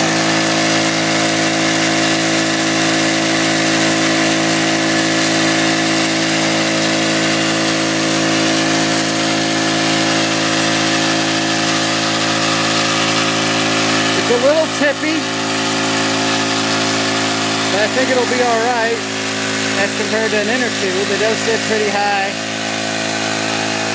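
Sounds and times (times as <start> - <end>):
small engine running steadily: 0.0 - 23.9.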